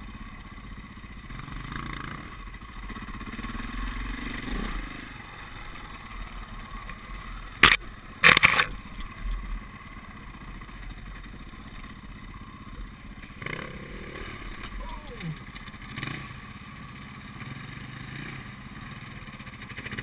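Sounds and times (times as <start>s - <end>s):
dirt bike engine: 0.0s - 20.0s
sharp scraping knocks: 7.3s - 9.4s.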